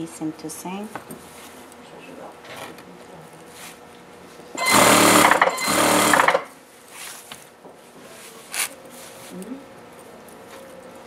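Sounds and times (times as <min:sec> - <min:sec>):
sewing machine stitching: 0:04.6 - 0:06.5.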